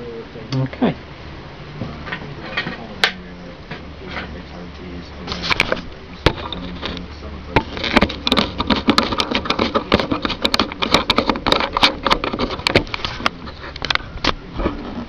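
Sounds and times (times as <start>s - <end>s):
low steady hum: 0.0s - 15.0s
handling clicks and knocks: 5.3s - 14.4s.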